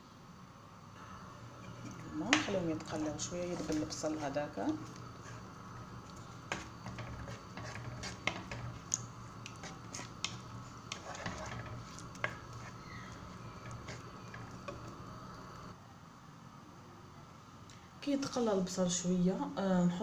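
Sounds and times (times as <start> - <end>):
onions frying in oil: 1.4 - 15.8
wooden spoon knocking on pot: 2.2 - 4.1.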